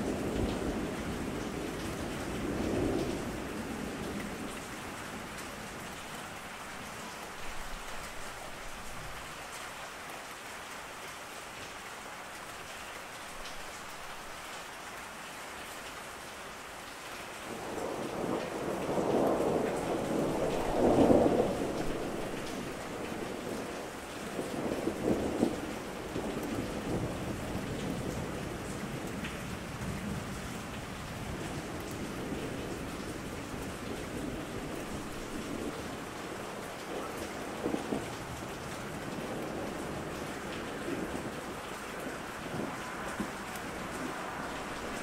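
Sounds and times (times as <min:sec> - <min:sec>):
steady rain: 0:00.0 - 0:45.0
rolling thunder: 0:17.6 - 0:23.7, 0:24.4 - 0:45.0.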